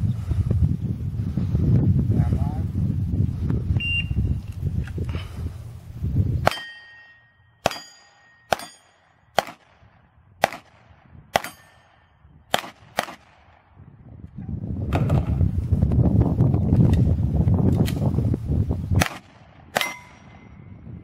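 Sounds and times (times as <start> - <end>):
pistol shots: 6.4 - 13.7, 19.0 - 20.3
steel plate clanging: 6.5 - 9.0, 11.4 - 11.9.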